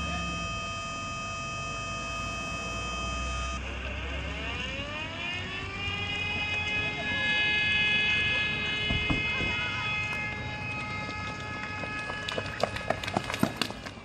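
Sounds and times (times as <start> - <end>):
steady high whine: 0.0 - 5.8
fire siren winding up: 0.0 - 12.8.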